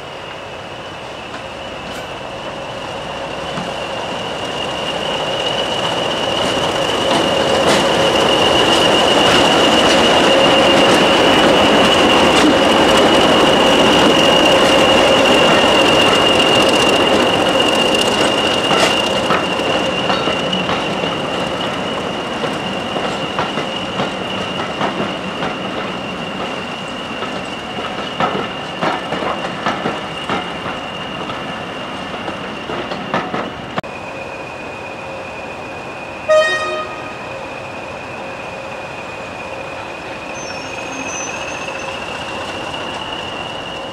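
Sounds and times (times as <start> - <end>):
diesel train rolling past: 0.0 - 43.9
train horn toot: 36.3 - 37.3.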